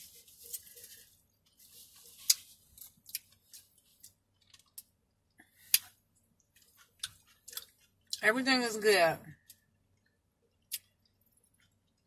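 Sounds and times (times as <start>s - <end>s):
person chewing with mouth clicks: 2.2s - 8.2s, 10.6s - 12.0s.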